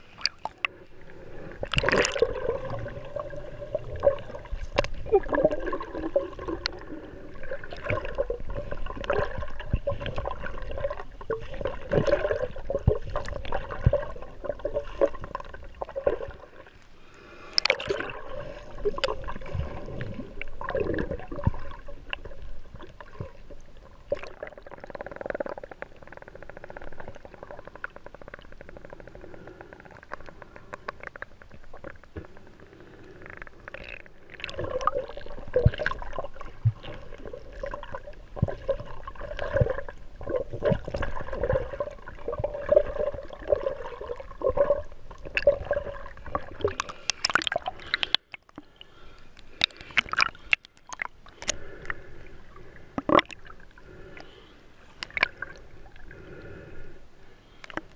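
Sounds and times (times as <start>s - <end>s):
water gurgling underwater: 0.0s - 16.8s, 17.6s - 29.0s, 33.3s - 48.8s, 49.6s - 51.8s, 52.5s - 54.2s, 55.0s - 56.2s
underwater clicks: 0.2s - 0.8s, 1.6s - 2.4s, 4.0s - 5.8s, 17.5s - 18.2s, 46.3s - 52.0s, 52.9s - 56.0s, 57.6s - 57.9s.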